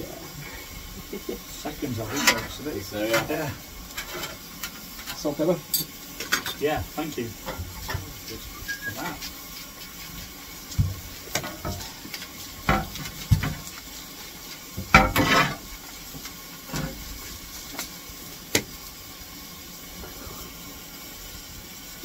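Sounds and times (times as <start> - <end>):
fire hissing: 0.0 - 22.0
vegetables frying on a shovel: 0.0 - 22.0
metal knocks and clatters: 12.7 - 13.7, 14.8 - 15.6.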